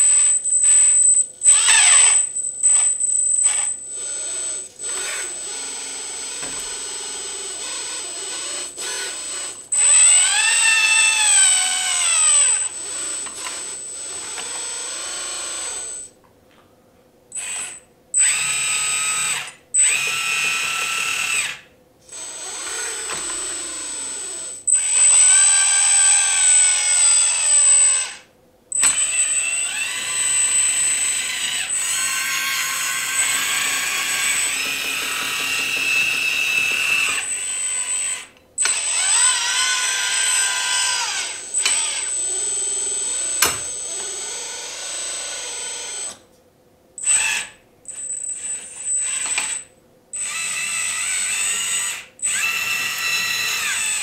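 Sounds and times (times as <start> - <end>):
hydraulic pump whining: 0.0 - 16.1, 22.2 - 27.4, 28.8 - 46.2.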